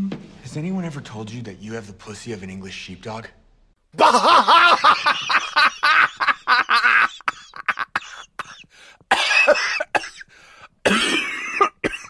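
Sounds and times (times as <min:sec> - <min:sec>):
person laughing hard: 0:04.0 - 0:08.6.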